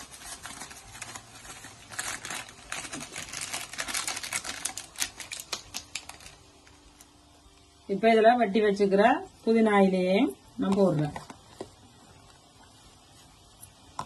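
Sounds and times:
foil packet crinkling: 0.0s - 6.8s.

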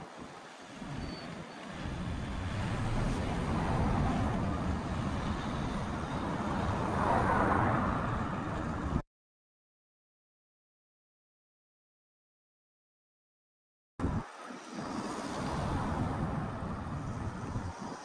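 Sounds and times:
cars driving past: 0.8s - 9.0s, 14.3s - 18.0s.

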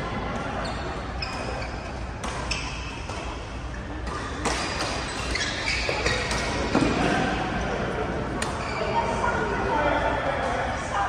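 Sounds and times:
court shoes squeaking: 0.0s - 9.3s
racket hitting shuttlecock: 1.4s - 7.1s.

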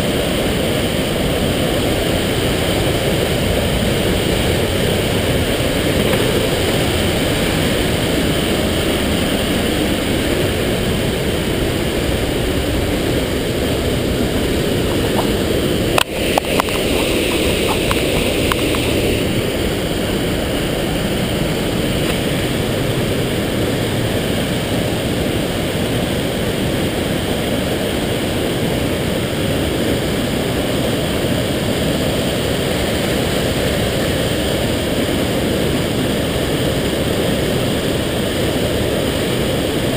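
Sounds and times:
stream rushing over rocks: 0.0s - 39.9s
sharp clicks: 15.1s - 19.0s.

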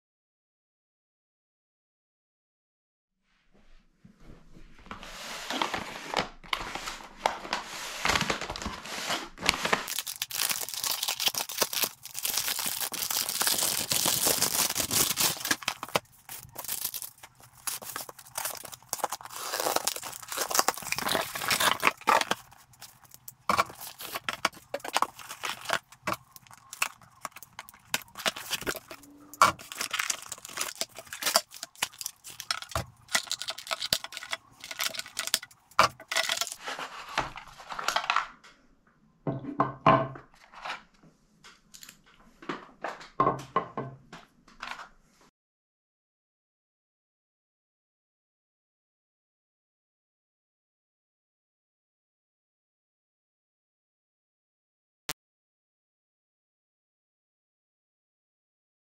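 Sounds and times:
plastic bag tearing and crinkling: 8.0s - 38.2s.

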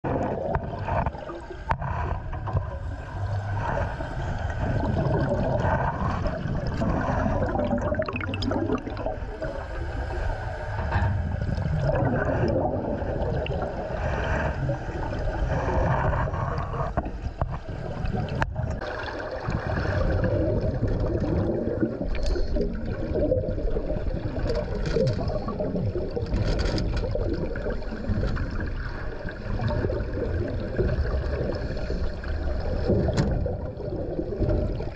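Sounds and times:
sea water sloshing: 0.0s - 34.9s.

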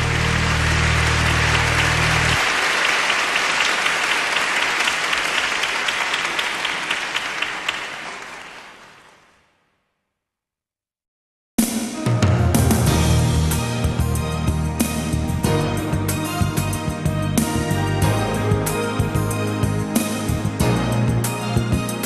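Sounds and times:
low music chord: 0.0s - 2.4s
audience applause: 0.0s - 9.5s.

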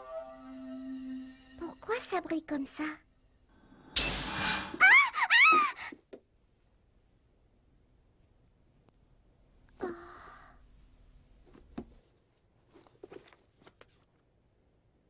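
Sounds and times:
book clicks and rustles: 11.5s - 14.3s.

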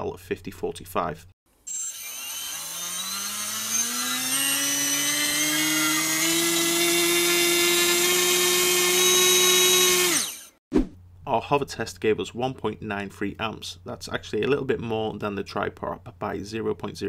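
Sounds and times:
electric motor whine: 1.6s - 10.6s.

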